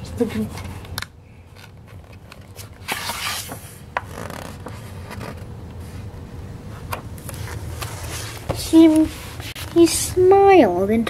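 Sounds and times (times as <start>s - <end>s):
low steady hum: 0.0s - 11.0s
book pages scraping: 1.6s - 6.1s, 6.7s - 9.9s.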